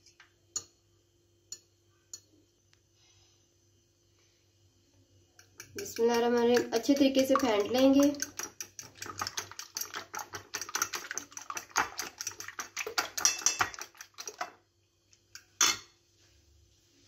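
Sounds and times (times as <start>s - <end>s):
whisk clicking against glass bowl: 5.4s - 14.6s.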